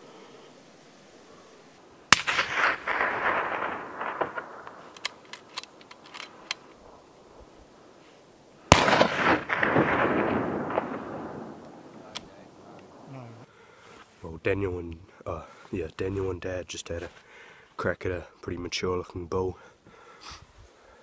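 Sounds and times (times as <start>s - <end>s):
echo rolling off mountains: 0.0s - 20.2s
suppressed rifle shots: 2.1s - 7.1s, 8.7s - 13.0s.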